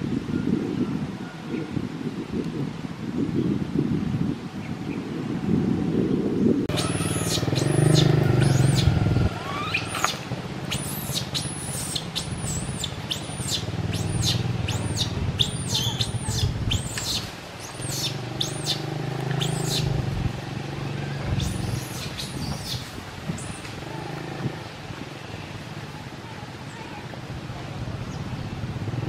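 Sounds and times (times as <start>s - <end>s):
baby monkey squealing: 6.7s - 18.8s, 19.4s - 19.9s, 21.4s - 22.8s.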